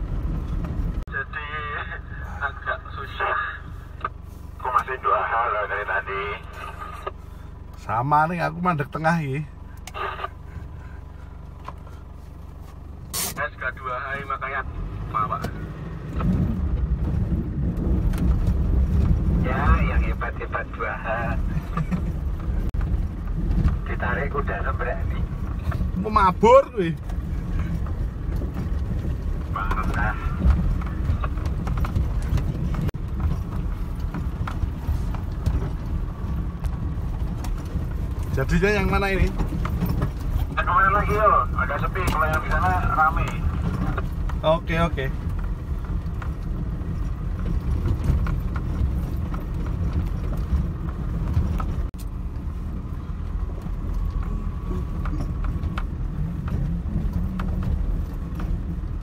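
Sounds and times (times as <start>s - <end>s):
knocks and rattles over bumps: 0.0s - 1.0s, 15.3s - 20.5s, 21.2s - 59.0s
truck engine rumble: 0.0s - 59.0s.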